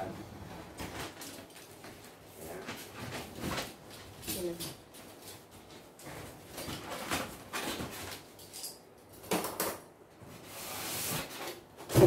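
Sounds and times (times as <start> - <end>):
cardboard and styrofoam scraping: 10.4 - 12.0.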